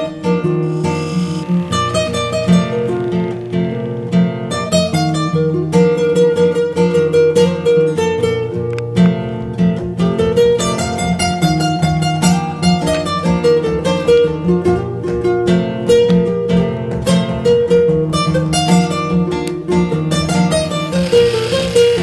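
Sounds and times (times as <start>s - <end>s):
acoustic guitar picking: 0.0s - 9.3s, 20.5s - 22.0s.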